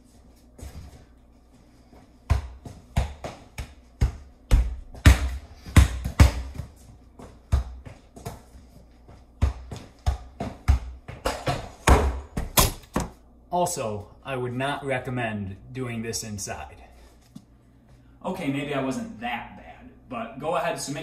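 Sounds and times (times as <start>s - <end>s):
ball thumping off feet: 0.5s - 13.2s.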